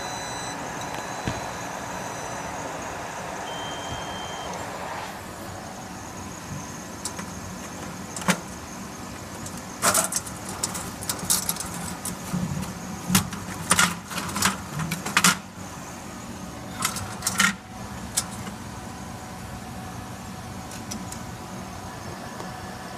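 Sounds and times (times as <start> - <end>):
laser cutter humming: 0.0 - 10.4.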